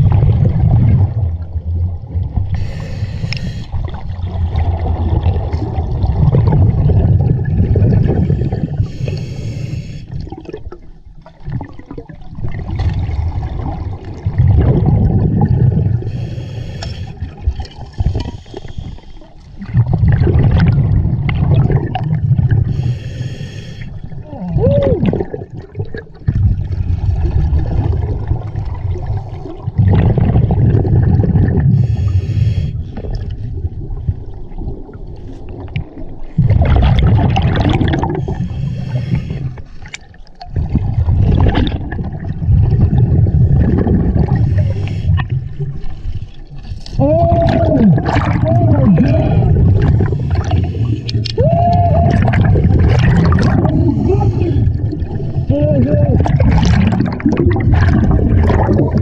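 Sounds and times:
rumbling exhaled bubbles: 0.0s - 16.3s, 17.1s - 22.9s, 23.9s - 59.0s
regulator hissing inhalations: 2.6s - 3.8s, 8.9s - 10.1s, 16.1s - 17.2s, 18.2s - 19.2s, 22.7s - 24.0s, 31.8s - 32.8s, 38.2s - 39.8s, 44.5s - 45.2s.

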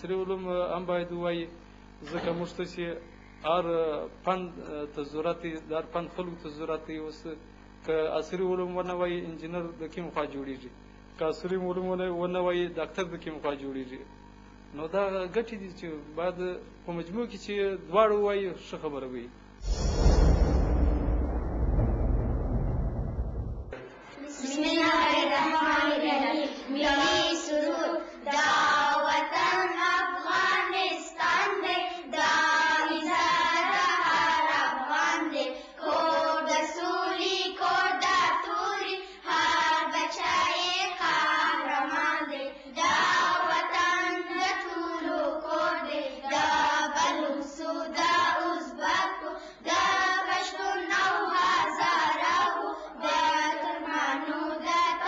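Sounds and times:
children singing in unison: 24.3s - 55.0s.

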